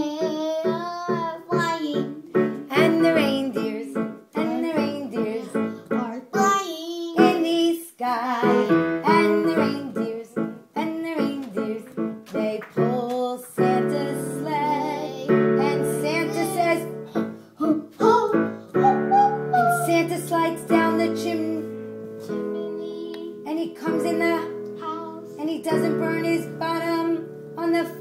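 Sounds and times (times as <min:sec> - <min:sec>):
boy singing into microphone: 0:00.0 - 0:21.7
electric keyboard: 0:18.1 - 0:20.2.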